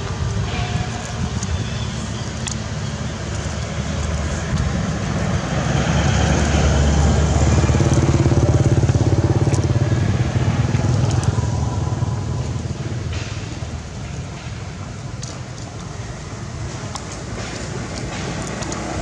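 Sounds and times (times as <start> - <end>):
passing vehicle engine: 2.5 - 13.4.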